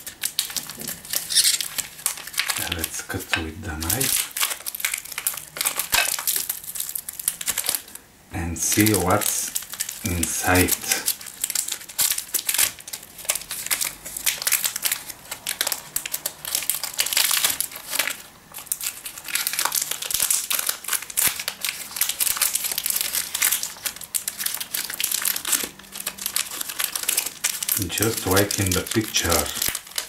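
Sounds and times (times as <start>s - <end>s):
plastic wrapper crackling: 0.0s - 8.0s, 8.7s - 30.0s.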